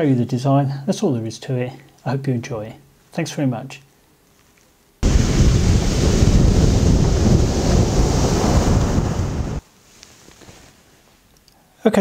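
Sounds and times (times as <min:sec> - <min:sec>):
waves breaking on shingle: 0:05.0 - 0:09.6
wind buffeting microphone: 0:05.0 - 0:09.6.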